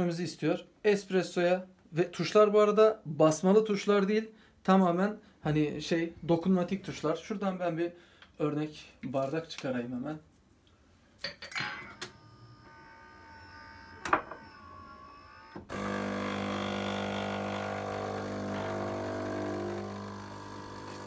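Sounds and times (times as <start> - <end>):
espresso machine pump humming: 15.6 - 21.0.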